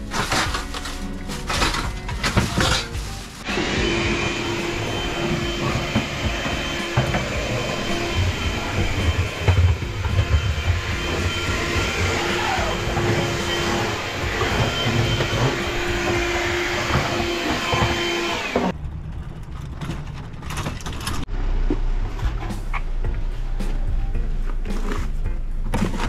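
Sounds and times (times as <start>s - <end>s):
cordless drill running: 3.4s - 18.7s.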